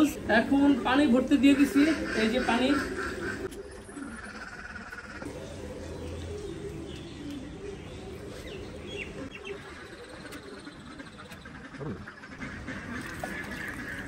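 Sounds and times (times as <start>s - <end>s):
water running into pool: 12.8s - 14.0s.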